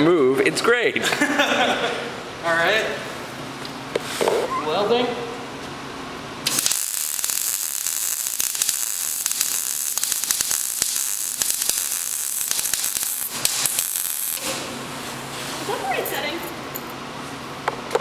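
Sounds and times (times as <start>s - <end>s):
welding arc crackling hiss: 6.4s - 15.7s.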